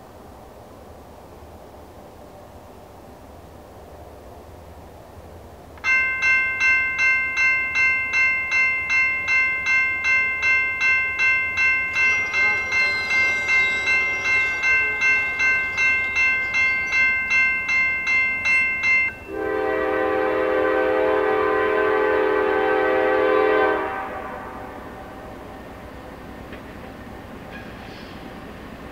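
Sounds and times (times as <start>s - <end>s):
crossing warning bell ringing: 5.8s - 21.4s
locomotive air horn: 12.1s - 15.4s, 19.3s - 25.3s.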